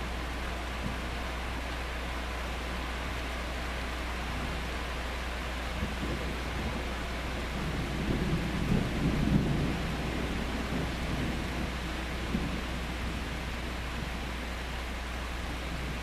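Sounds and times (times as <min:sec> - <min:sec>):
steady background hiss: 0:00.0 - 0:16.0
thunder rumbling: 0:05.7 - 0:16.0.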